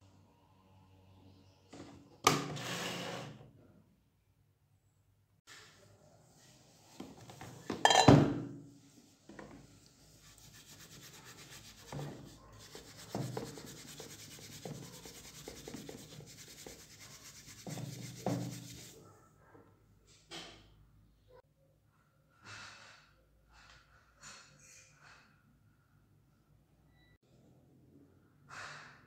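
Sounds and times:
steel wool scrubbing metal: 10.2s - 19.0s.

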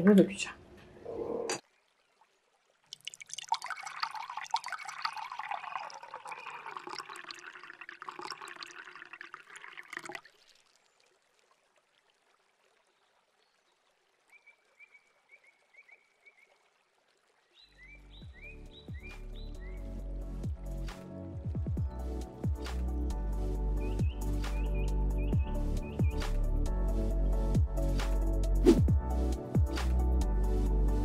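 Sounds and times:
water pouring into a jar: 2.8s - 12.7s.

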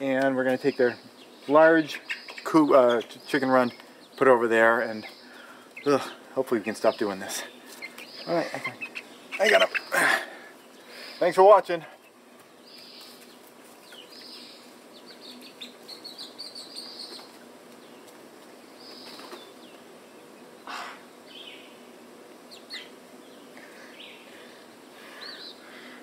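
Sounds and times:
chicks peeping: 0.5s - 19.8s
wings flapping: 17.1s - 19.8s.

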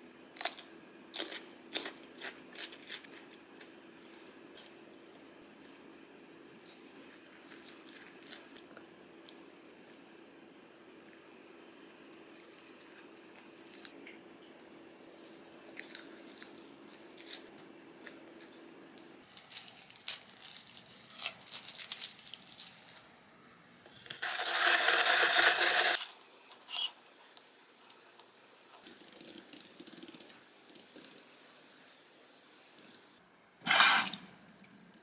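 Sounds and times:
paper wrapper tearing and crinkling: 19.2s - 23.1s, 24.2s - 26.1s.

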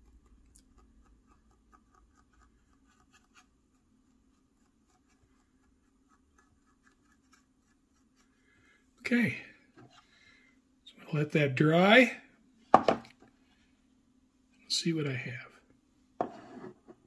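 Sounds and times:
dry brush scratching plastic: 0.7s - 8.3s.

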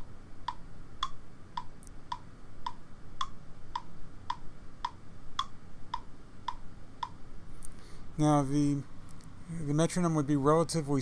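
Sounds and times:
metronome ticking: 0.0s - 7.2s.

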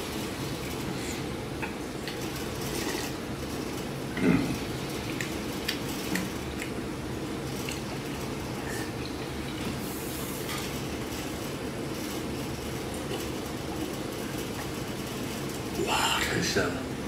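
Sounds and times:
steady low hum: 0.0s - 17.0s
person slurping and chewing: 2.0s - 3.2s.

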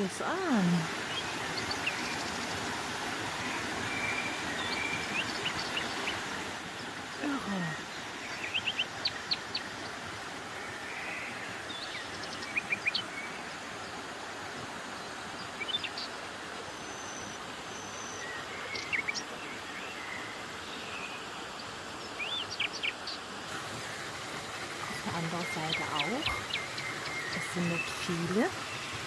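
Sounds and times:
stream water rushing: 0.0s - 29.0s
bird chirps: 24.9s - 28.9s.

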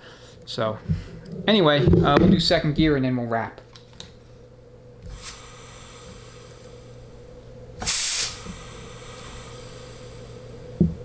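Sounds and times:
faint steady hum: 0.0s - 11.0s
compressed air hissing: 5.0s - 7.2s, 7.8s - 11.0s.

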